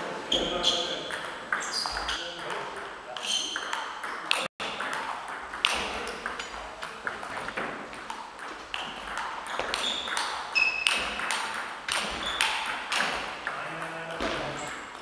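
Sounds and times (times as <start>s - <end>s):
table tennis ball clicking: 3.2s - 15.0s.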